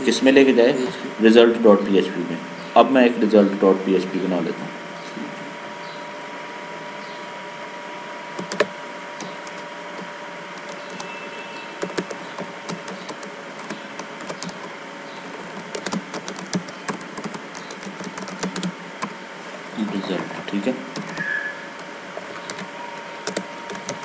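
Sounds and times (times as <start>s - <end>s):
low hiss and hum: 0.0s - 24.0s
computer keyboard typing: 8.4s - 11.2s, 11.8s - 19.2s, 19.8s - 24.0s.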